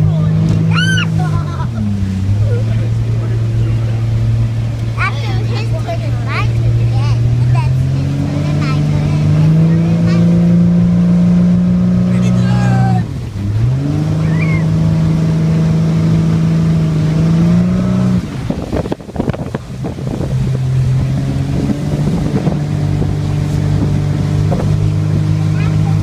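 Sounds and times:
motorboat engine humming: 0.0s - 26.0s
wind noise: 17.7s - 25.4s.

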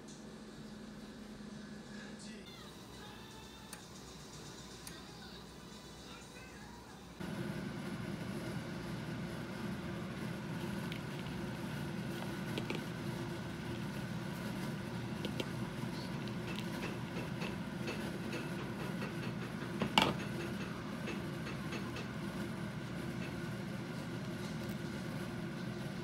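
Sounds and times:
steady low hum: 0.0s - 26.0s
wooden spoon pushing food: 10.2s - 19.4s.

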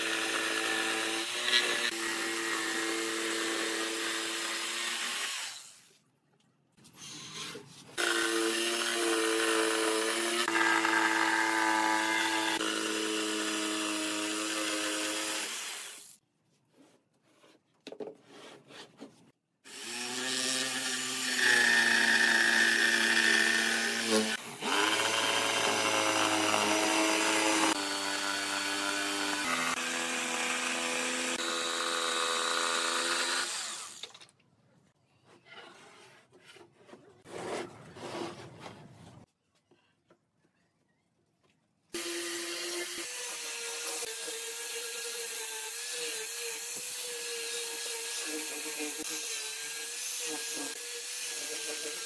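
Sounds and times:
electric jigsaw cutting wood: 0.0s - 5.9s, 8.0s - 16.2s, 19.7s - 34.2s, 42.0s - 52.0s.

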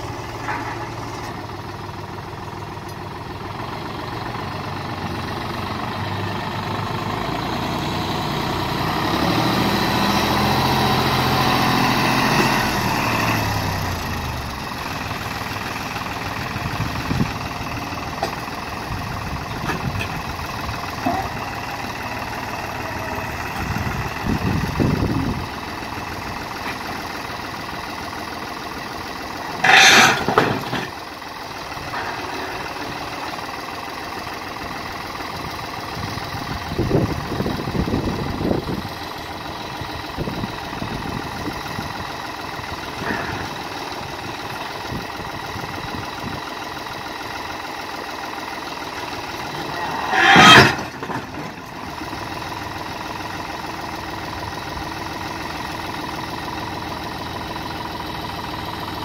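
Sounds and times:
tractor diesel engine running: 0.0s - 59.0s
scraping and knocking: 49.8s - 51.6s.

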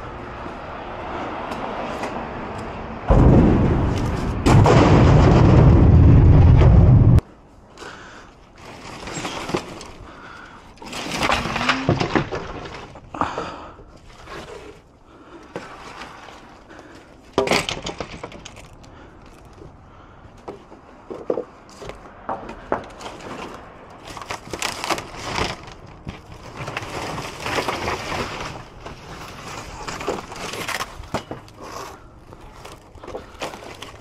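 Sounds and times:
wood boards dropped thump: 10.9s - 13.0s, 17.4s - 18.6s
wood boards knocking and clattering: 10.9s - 13.6s, 17.4s - 18.8s, 20.4s - 23.5s.

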